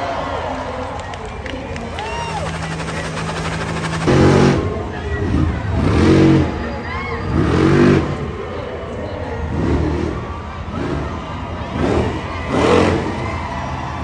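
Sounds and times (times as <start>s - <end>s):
truck engine revving: 1.7s - 6.7s, 9.4s - 13.5s.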